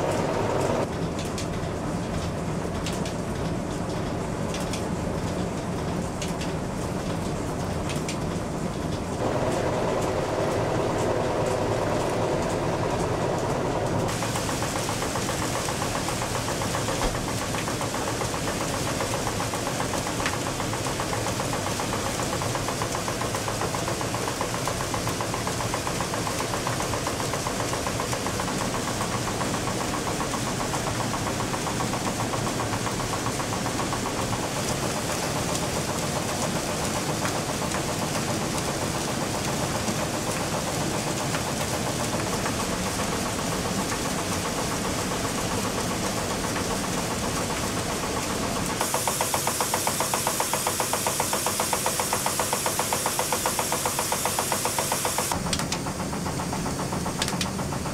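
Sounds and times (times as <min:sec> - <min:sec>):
mill machinery rattling: 0:00.0 - 0:57.9
grain sieve clacking: 0:48.8 - 0:55.7.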